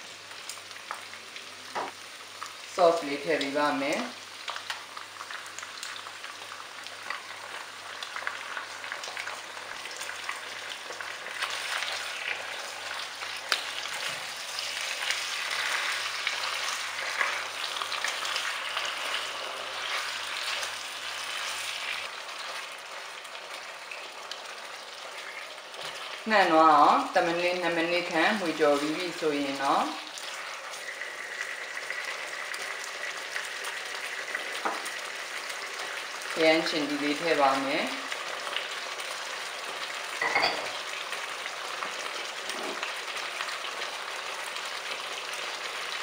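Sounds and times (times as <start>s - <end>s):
pork sizzling in a wok: 0.0s - 46.0s.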